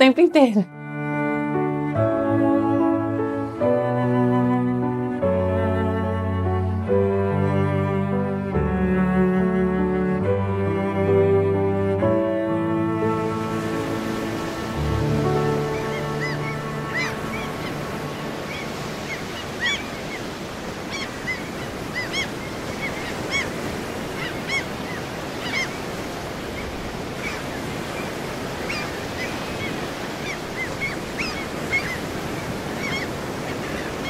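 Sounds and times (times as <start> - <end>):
music: 0.0 - 20.1
chirping bird calls: 14.1 - 25.9, 26.5 - 34.0.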